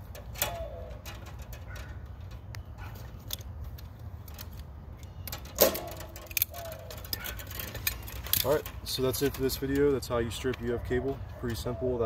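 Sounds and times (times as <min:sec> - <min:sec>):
wires and pliers clicking: 0:00.0 - 0:10.6.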